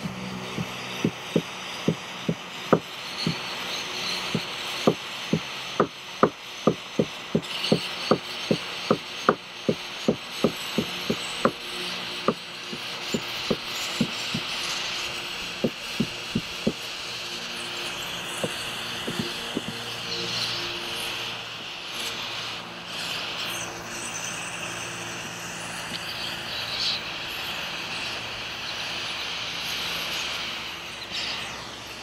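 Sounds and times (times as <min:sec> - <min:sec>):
hand torch hissing: 0:00.0 - 0:32.0.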